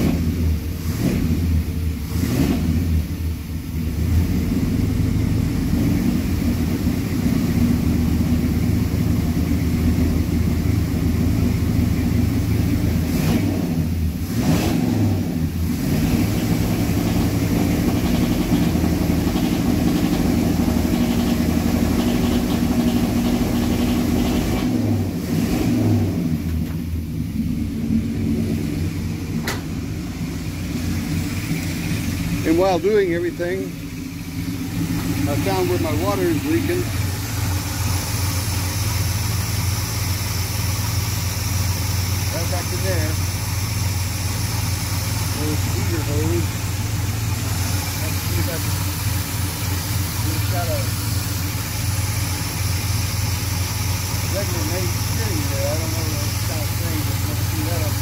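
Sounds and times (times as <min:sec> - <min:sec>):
pickup engine running with a miss: 0:00.0 - 0:58.0.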